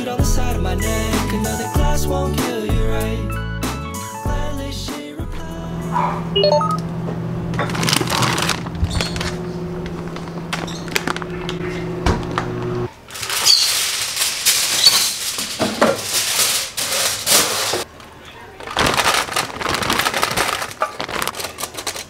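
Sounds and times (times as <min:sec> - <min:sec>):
freezer humming: 0:04.7 - 0:13.5, 0:16.6 - 0:22.0
aluminium foil tearing and crinkling: 0:07.6 - 0:09.4, 0:10.1 - 0:11.4, 0:13.0 - 0:17.9, 0:18.6 - 0:22.0
plastic packaging rustling: 0:07.6 - 0:11.8, 0:12.9 - 0:22.0.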